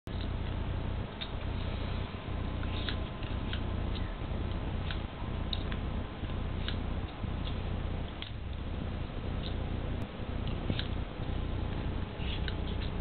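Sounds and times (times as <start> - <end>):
steady low hum: 0.1 - 13.0
scissors snipping fur: 2.6 - 8.4.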